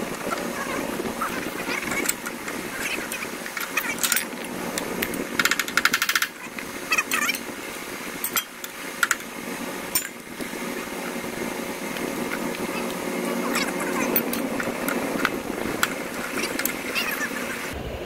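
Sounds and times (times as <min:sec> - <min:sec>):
steady low hum: 0:00.0 - 0:18.0
hand tools clicking: 0:03.4 - 0:06.4, 0:10.0 - 0:10.2.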